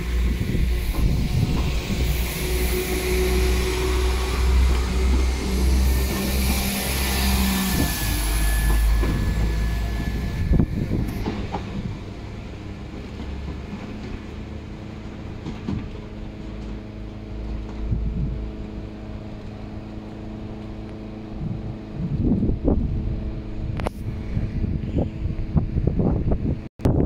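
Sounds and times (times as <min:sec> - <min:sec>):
distant diesel train engine drone: 0:00.0 - 0:26.6
diesel train passing rumble: 0:00.0 - 0:26.7
wheel squeal: 0:00.9 - 0:12.1.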